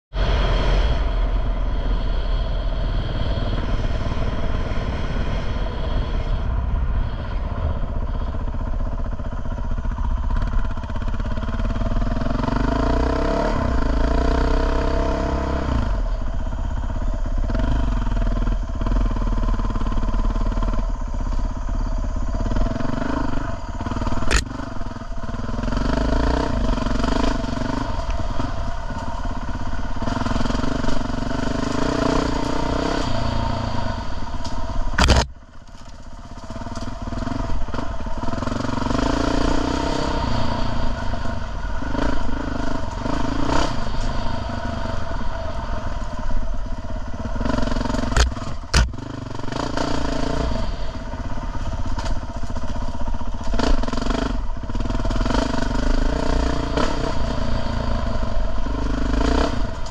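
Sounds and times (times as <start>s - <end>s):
wind rumble on microphone: 0.1s - 12.5s
dirt bike engine revving: 0.2s - 16.3s, 22.4s - 35.4s, 36.3s - 59.9s.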